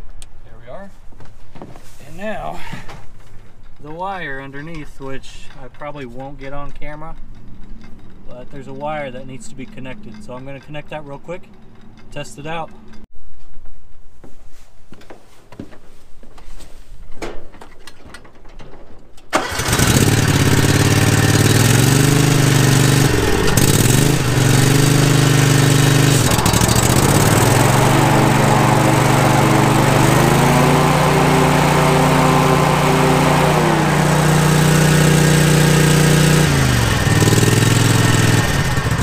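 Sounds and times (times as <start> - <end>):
lawn mower engine running: 19.3 - 39.0.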